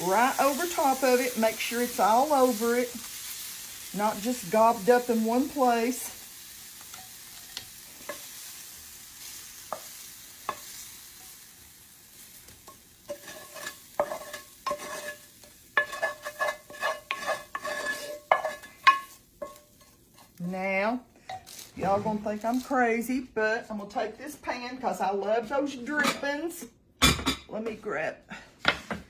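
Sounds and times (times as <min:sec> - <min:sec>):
spatula scraping frying pan: 0:00.0 - 0:20.5
spatula knocking on pan: 0:15.8 - 0:19.6.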